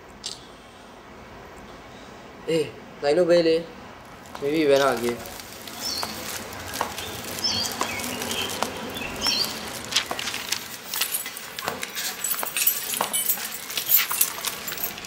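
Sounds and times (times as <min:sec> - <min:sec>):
footsteps in flip-flops on concrete: 0:04.0 - 0:15.0
newspaper rustling: 0:04.0 - 0:15.0
small birds chirping: 0:04.4 - 0:10.5.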